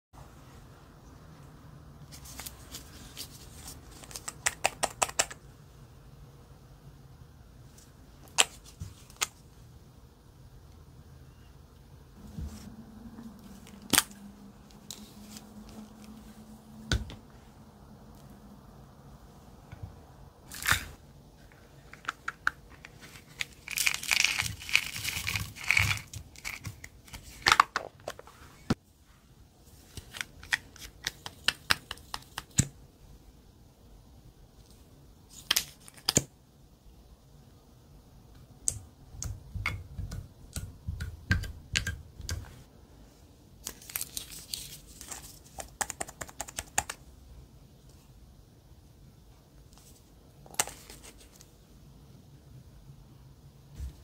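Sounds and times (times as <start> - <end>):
clicks and taps of caps: 4.1 - 5.4.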